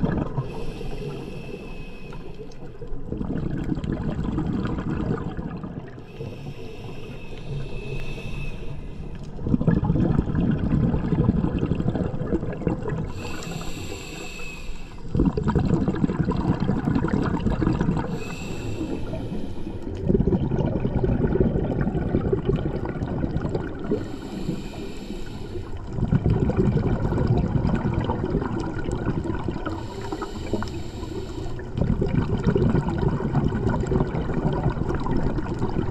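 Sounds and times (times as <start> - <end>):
exhaled bubbles: 0.0 - 35.9
regulator inhale hiss: 0.4 - 2.8, 6.1 - 9.4, 13.1 - 15.1, 18.0 - 20.0, 23.9 - 25.9, 29.6 - 31.8.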